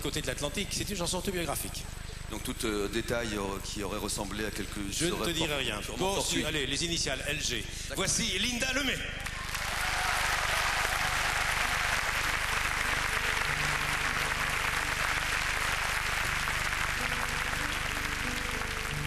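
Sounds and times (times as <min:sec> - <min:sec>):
audience applauding: 0:09.2 - 0:19.0
quiet instrumental music: 0:11.6 - 0:19.0.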